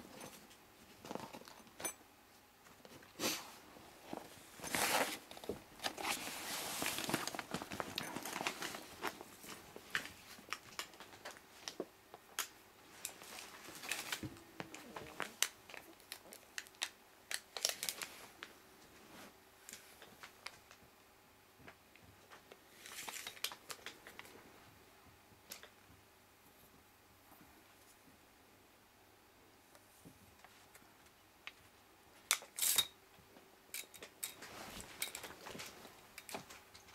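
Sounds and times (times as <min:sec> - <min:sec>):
tape measure clicks and rustles: 0:32.3 - 0:33.0.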